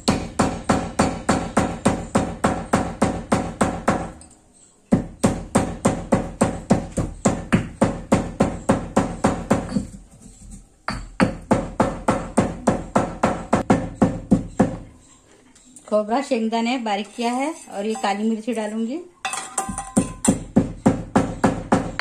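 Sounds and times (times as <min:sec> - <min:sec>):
stone pestle pounding in mortar: 0:00.0 - 0:04.2, 0:04.9 - 0:10.1, 0:10.9 - 0:14.9, 0:19.5 - 0:22.0.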